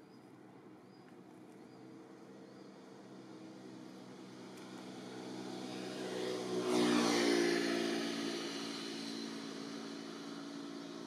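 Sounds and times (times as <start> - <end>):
passing vehicle engine: 2.3 - 11.0.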